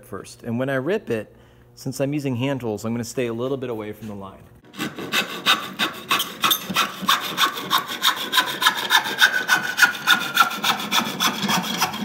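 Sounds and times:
handsaw ripping wood: 4.7 - 12.0.

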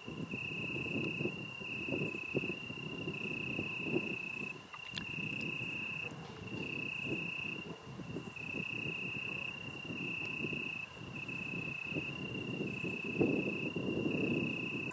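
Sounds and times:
insect trilling: 0.2 - 14.9.

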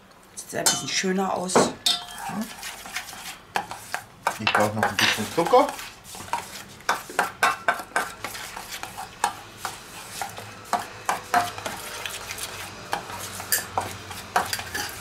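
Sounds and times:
spoon clinking and scraping bowl: 1.8 - 15.0
spoon stirring thick dip: 1.8 - 15.0.

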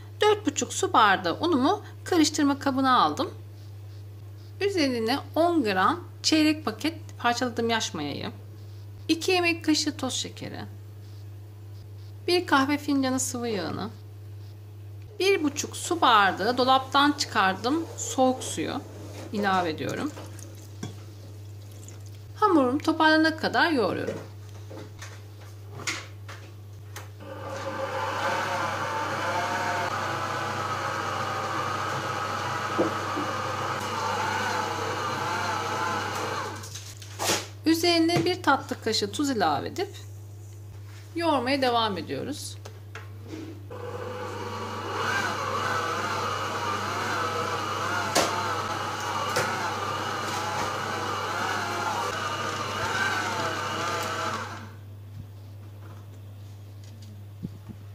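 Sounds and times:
stand mixer motor running: 27.2 - 36.6, 43.7 - 54.8.

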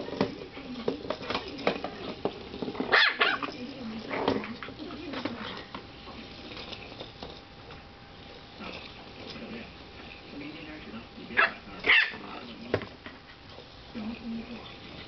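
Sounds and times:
puppy barking: 2.9 - 3.5, 11.4 - 12.2.

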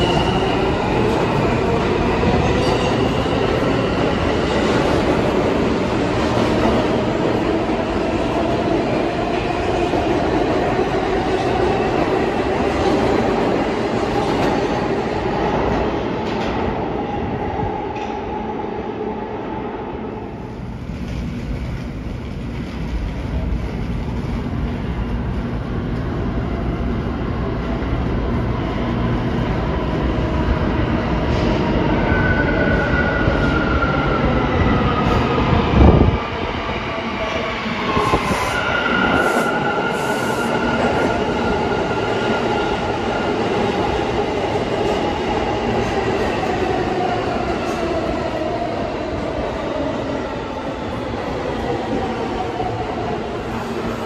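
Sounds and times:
subway train rail noise: 0.0 - 54.0.

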